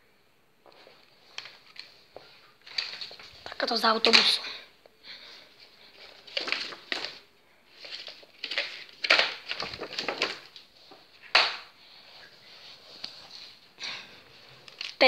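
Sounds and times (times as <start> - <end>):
stiff paper rustling and scraping: 5.8 - 11.0.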